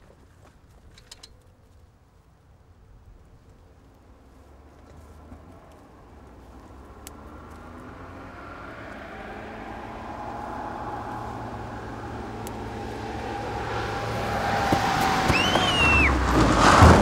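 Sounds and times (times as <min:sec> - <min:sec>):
car engine and tyre noise: 0:00.0 - 0:17.0
tyres screeching: 0:11.2 - 0:17.0.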